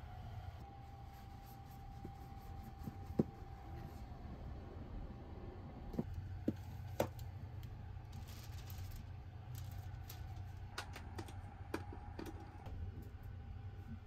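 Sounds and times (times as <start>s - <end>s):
steady low hum: 0.0s - 14.0s
plastic bag rustling: 8.0s - 10.7s.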